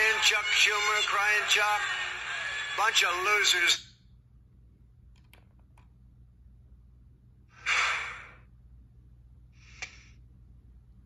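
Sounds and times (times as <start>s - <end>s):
faint low hum: 0.0s - 11.0s.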